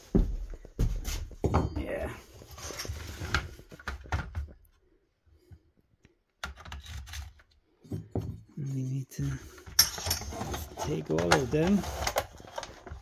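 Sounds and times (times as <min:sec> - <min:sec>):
drill bits rattling in plastic case: 0:09.5 - 0:13.0.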